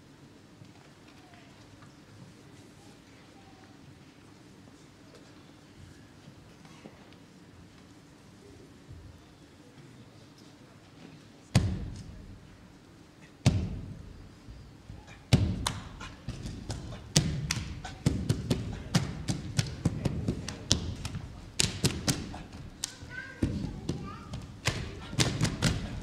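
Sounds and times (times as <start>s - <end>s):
heavy booming thuds: 13.4s - 14.6s
sharp taps: 15.3s - 25.9s.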